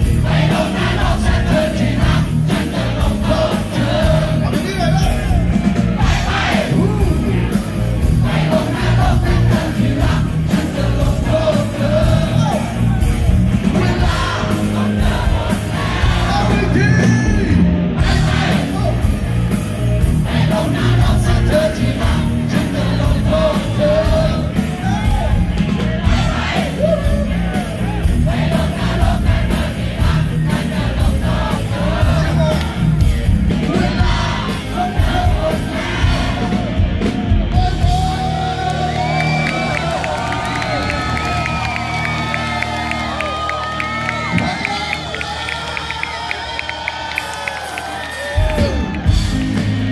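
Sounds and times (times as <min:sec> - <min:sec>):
drum kit: 0:00.0 - 0:45.1, 0:47.1 - 0:49.9
bass guitar: 0:00.0 - 0:46.2, 0:47.2 - 0:49.9
man singing: 0:16.2 - 0:17.6, 0:20.5 - 0:25.1, 0:33.6 - 0:35.8.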